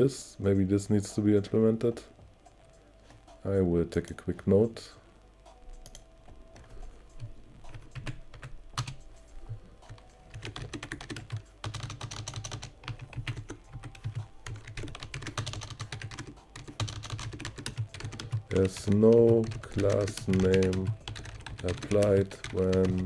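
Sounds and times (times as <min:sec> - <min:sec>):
keyboard typing: 0:05.8 - 0:23.0.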